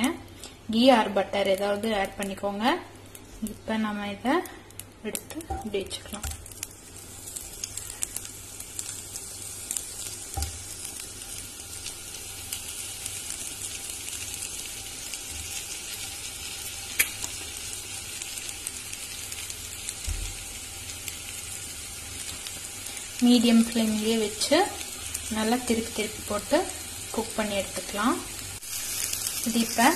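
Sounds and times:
ghee sizzling in a frying pan: 0.0 - 29.9.

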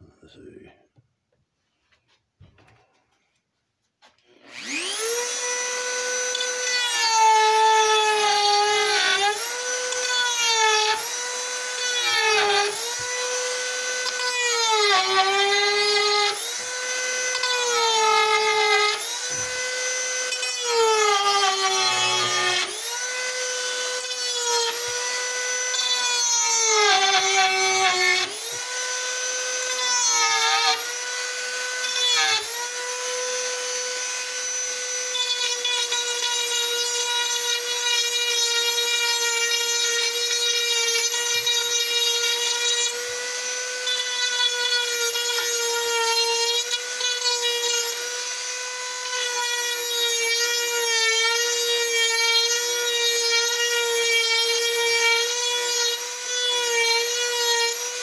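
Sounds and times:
rotary tool whining: 4.2 - 58.0.

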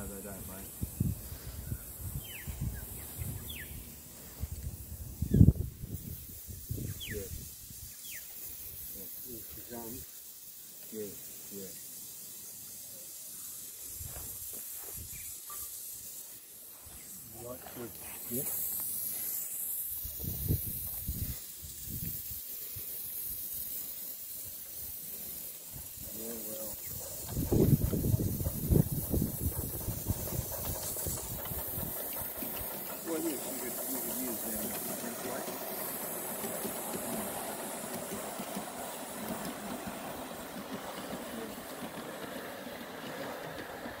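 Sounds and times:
steam hissing: 0.0 - 44.0
model train running on track: 22.8 - 44.0.

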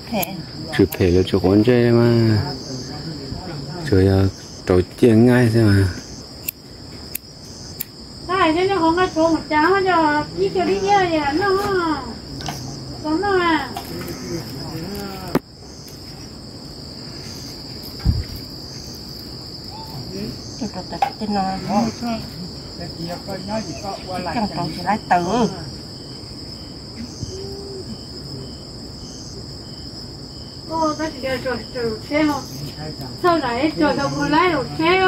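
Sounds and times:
crickets trilling: 0.0 - 35.0
low voices talking: 9.1 - 15.4, 26.9 - 28.7
dull thump: 18.0 - 18.5.

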